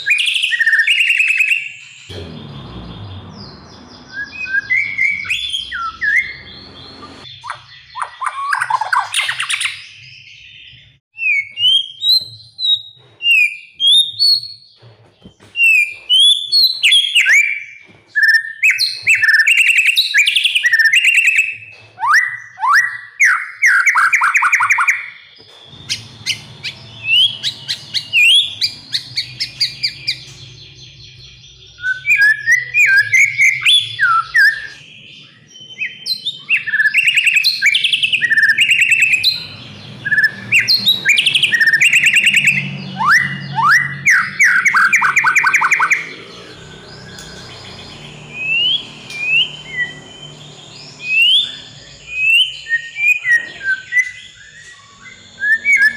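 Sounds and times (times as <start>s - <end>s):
bird singing trills and whistles: 0.0s - 55.9s.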